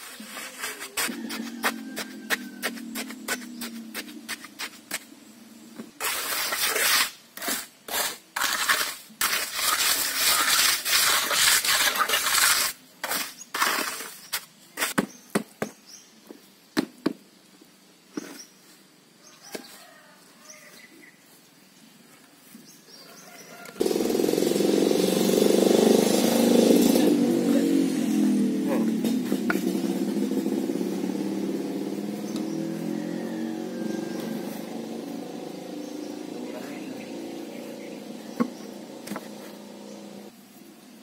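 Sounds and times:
rough scraping of mix: 0.0 - 5.1, 6.0 - 14.9.

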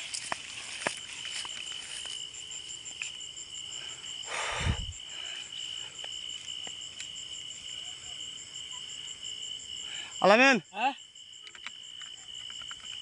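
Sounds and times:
footsteps snapping: 0.0 - 2.2
rustle of leafy plants: 0.0 - 4.0
insects trilling: 0.0 - 13.0
ticking insect call: 0.0 - 13.0.

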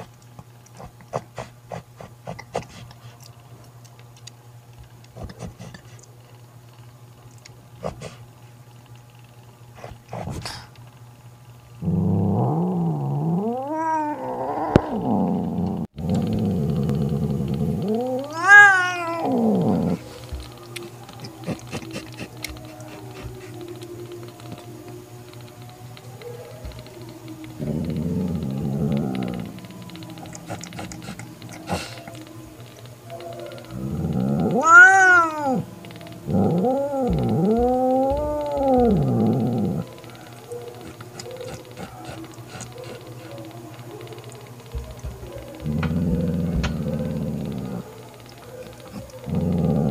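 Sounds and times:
cat growling and yowling: 11.8 - 49.9.

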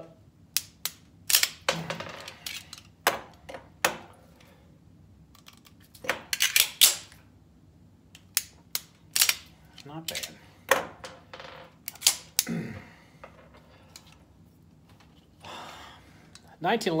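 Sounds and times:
pistol magazine metal clicks: 0.6 - 1.6, 8.2 - 9.5.

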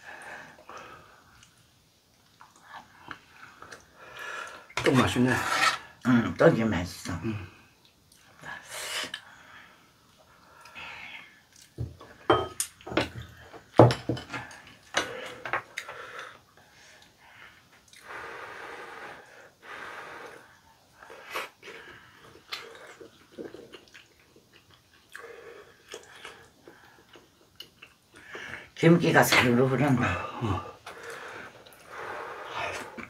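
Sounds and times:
people chewing food: 0.0 - 4.9, 7.3 - 28.8, 30.3 - 33.0
heavy breathing: 14.4 - 22.4, 30.0 - 33.0.

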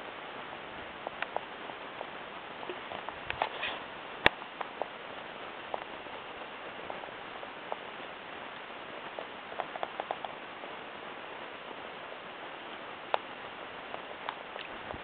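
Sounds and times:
steady water hiss: 0.0 - 15.0
taps and ticks on canoe hull: 9.6 - 10.4.

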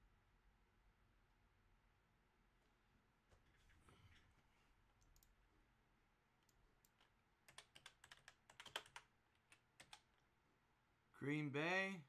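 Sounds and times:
keyboard keystrokes clicking: 6.9 - 10.0.

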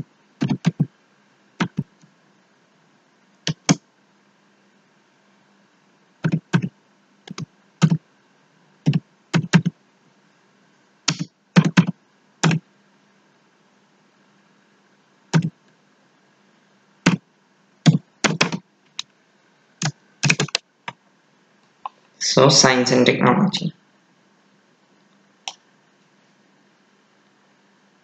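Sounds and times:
computer keyboard typing: 0.4 - 0.9, 1.6 - 1.9, 3.4 - 3.8, 6.2 - 6.7, 7.3 - 8.0, 8.9 - 9.7, 11.1 - 12.6, 17.8 - 19.1, 19.8 - 21.0.

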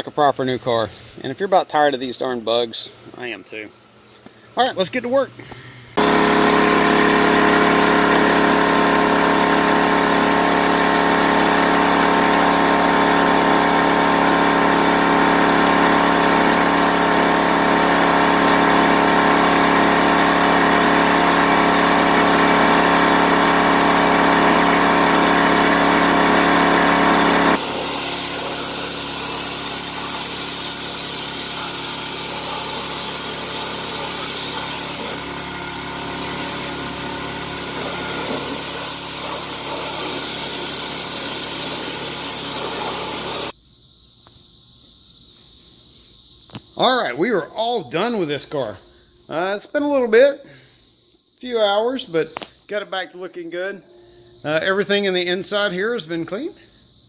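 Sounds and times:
pressure washer motor hum: 6.0 - 43.5
water spray hissing: 6.0 - 43.5.

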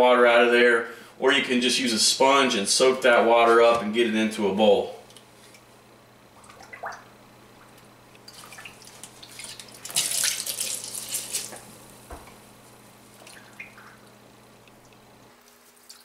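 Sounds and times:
water dripping and splashing: 6.4 - 11.7, 13.2 - 16.0.

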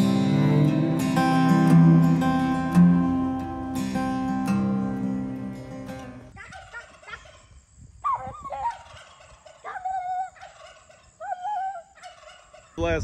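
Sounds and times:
acoustic guitar music: 0.0 - 6.3
turkey gobbling: 6.4 - 12.8.

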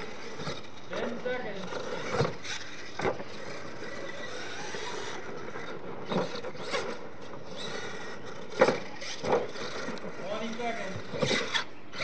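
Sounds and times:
toy truck motor and tyres: 0.0 - 12.0.

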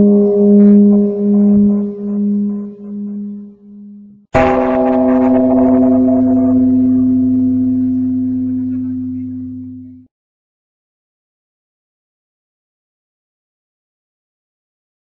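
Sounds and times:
large metal bell ringing: 0.0 - 10.0.

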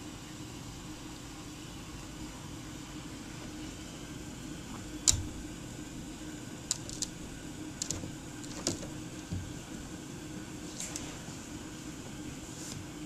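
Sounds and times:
low background hum: 0.0 - 13.0
dog pawing at wooden chair: 7.8 - 9.7.

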